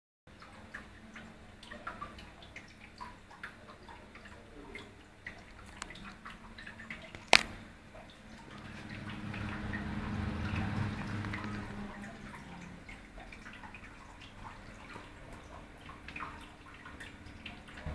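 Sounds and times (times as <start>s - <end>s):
faint ticks and drips: 0.3s - 17.9s
exhaust fan motor hum: 7.0s - 17.9s
low hum: 8.3s - 13.0s.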